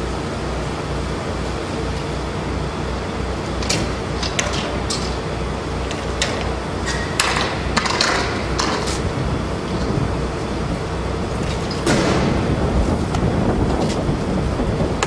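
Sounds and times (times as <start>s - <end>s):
low throbbing drone: 0.0s - 15.0s
metal catches clicking and clanking: 3.6s - 5.2s, 5.8s - 9.1s.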